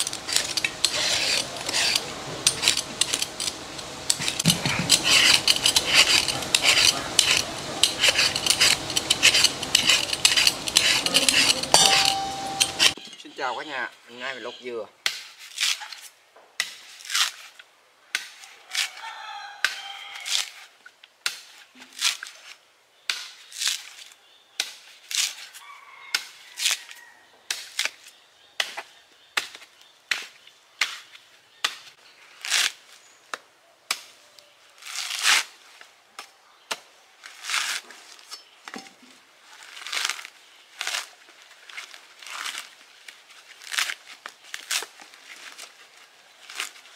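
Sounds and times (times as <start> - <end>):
machete chopping coconut husk: 4.1 - 13.0, 15.0 - 16.0, 16.6 - 19.0, 19.6 - 20.6, 21.2 - 22.4, 23.1 - 24.0, 24.6 - 25.5, 27.5 - 34.2
husk fibre tearing: 15.3 - 16.1, 16.8 - 17.7, 20.1 - 20.8, 21.5 - 22.6, 24.9 - 25.6, 32.2 - 33.0, 34.7 - 35.9, 37.2 - 38.3, 39.4 - 46.9.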